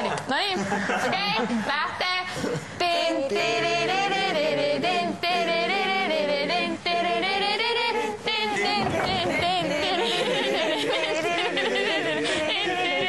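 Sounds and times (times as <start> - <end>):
person singing long notes: 2.8 - 13.0.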